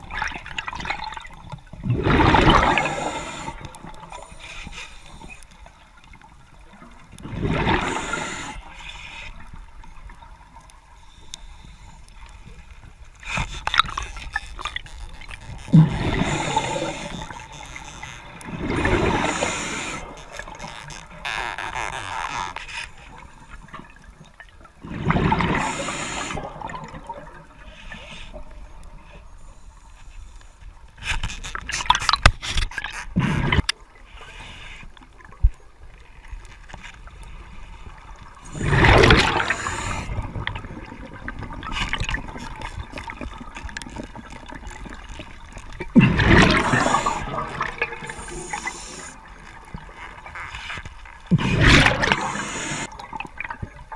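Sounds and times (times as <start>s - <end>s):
exhaled bubbles gurgling underwater: 0.0s - 4.4s, 5.1s - 11.0s, 12.5s - 21.4s, 23.1s - 29.3s, 37.0s - 53.9s
clicks and scrapes: 30.4s - 33.8s.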